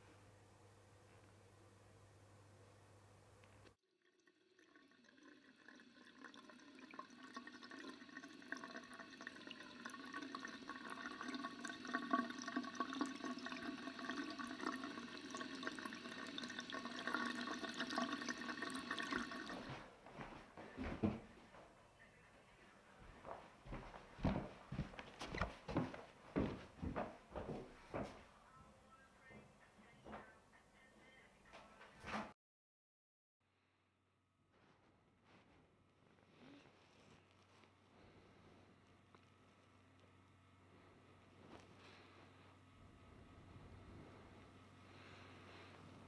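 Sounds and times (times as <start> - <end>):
water running from a tap: 4.0 - 19.8.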